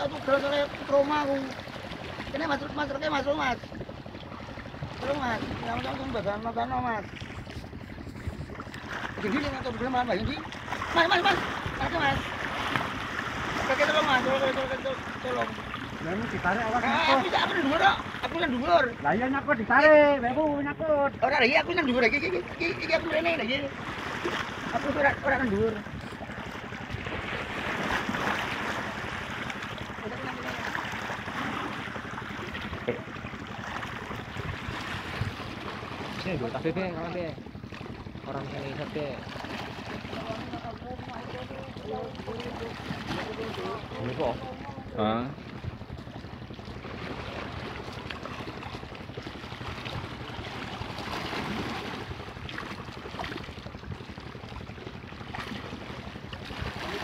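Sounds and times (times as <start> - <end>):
boat motor humming: 0.0 - 57.0
sea water lapping: 0.0 - 57.0
wind: 0.0 - 57.0
wind on microphone: 3.4 - 10.5.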